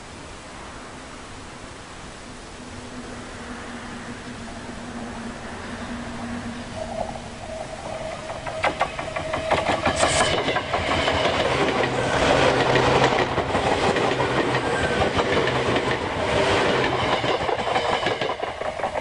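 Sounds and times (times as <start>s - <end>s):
electric train passing at speed: 0.0s - 19.0s
wheels clattering over rail joints: 7.0s - 19.0s.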